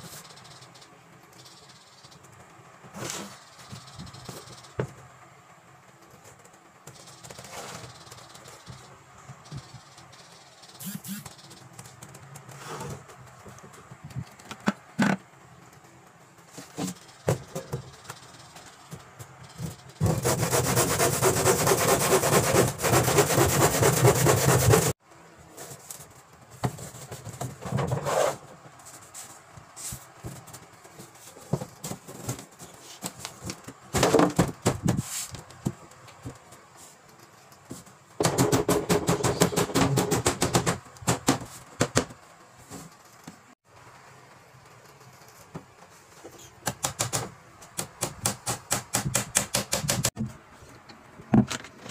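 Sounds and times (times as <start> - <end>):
saw cutting wood: 10.8 - 11.3, 20.0 - 25.0.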